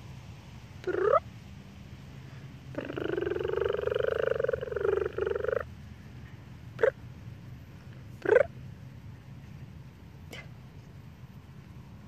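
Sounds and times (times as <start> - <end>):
whining howl-like calls: 0.8 - 1.2, 2.7 - 5.7, 8.2 - 8.5.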